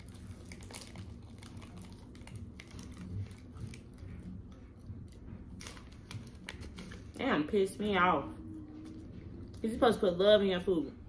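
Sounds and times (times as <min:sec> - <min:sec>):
person chewing food: 0:00.0 - 0:07.0.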